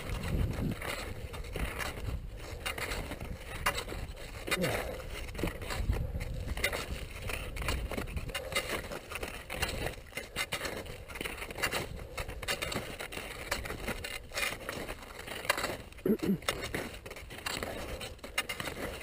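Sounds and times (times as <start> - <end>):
wind rumbling on microphone: 0.0 - 8.4
skis scraping over snow: 0.0 - 19.0.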